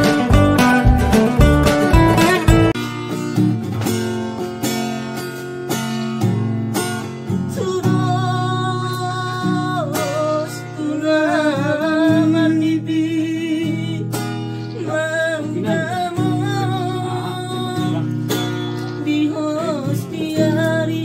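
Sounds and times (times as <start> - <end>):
person singing: 0.0 - 2.8, 7.5 - 21.0
classical guitar strumming: 0.0 - 21.0.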